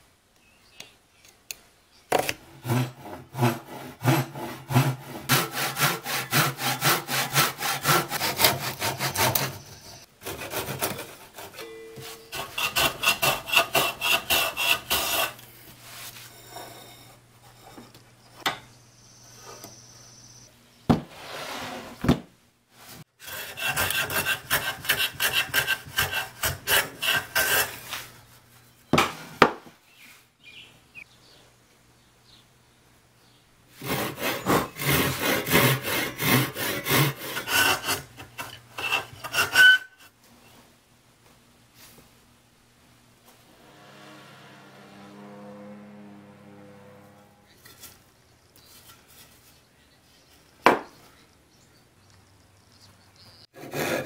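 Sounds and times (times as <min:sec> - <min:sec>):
handsaw cutting wood: 0:02.6 - 0:11.6, 0:12.2 - 0:15.4, 0:23.2 - 0:28.0, 0:33.8 - 0:39.9, 0:53.6 - 0:54.0
faint low hum: 0:42.0 - 0:53.4.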